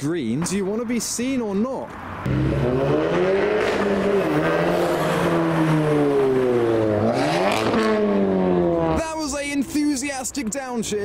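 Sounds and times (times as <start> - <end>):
car engine accelerating past: 2.2 - 9.0.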